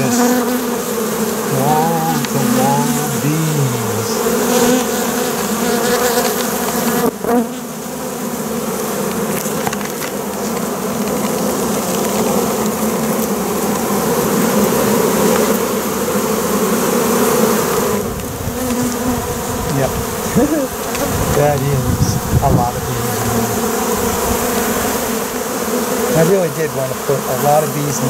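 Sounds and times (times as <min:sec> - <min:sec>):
honey bees buzzing: 0:00.0 - 0:28.0.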